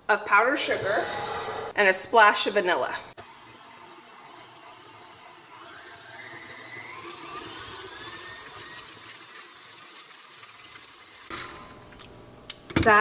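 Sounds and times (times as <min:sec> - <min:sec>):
stand mixer motor whine: 0:03.2 - 0:11.3.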